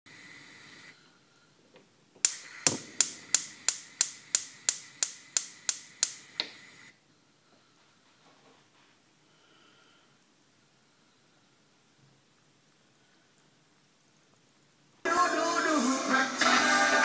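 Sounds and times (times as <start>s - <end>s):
sharp clicks: 2.2s - 6.6s
brief hiss: 2.2s - 7.0s.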